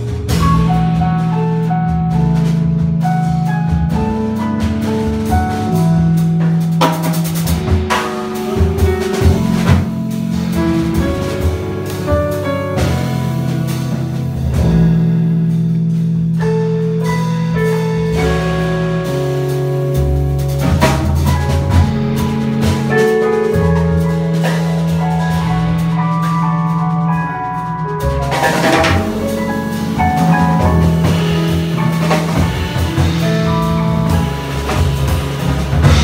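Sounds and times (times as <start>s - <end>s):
jazz ensemble playing: 0.0s - 36.0s
cymbal and drum strikes: 3.9s - 17.2s, 28.0s - 36.0s.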